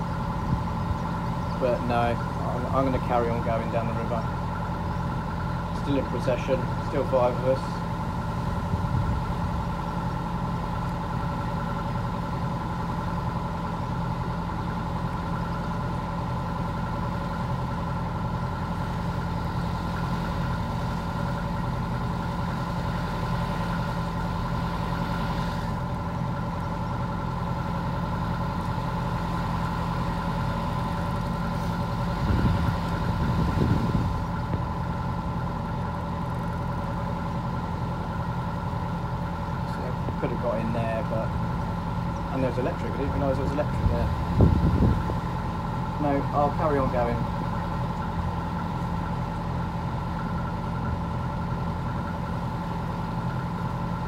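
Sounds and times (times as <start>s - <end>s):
boat diesel engine droning: 0.0s - 54.0s
low rumble: 31.6s - 35.4s.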